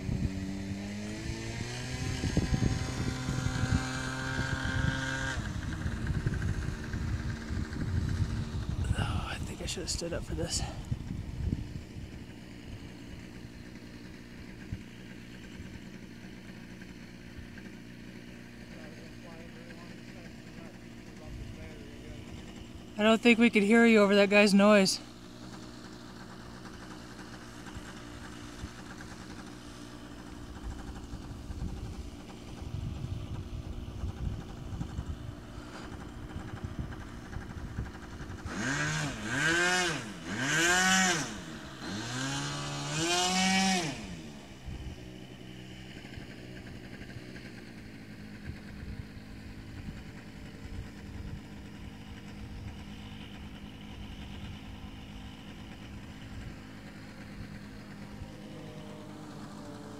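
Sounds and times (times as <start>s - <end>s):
model airplane motor and propeller: 0.0s - 59.9s.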